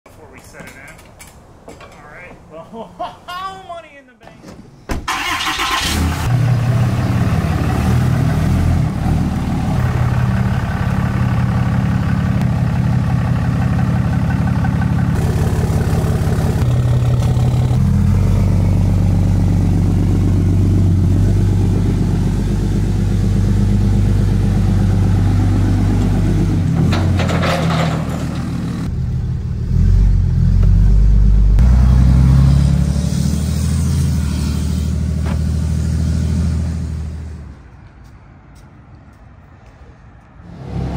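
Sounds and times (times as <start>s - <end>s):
pickup truck engine running: 5.2s - 26.8s.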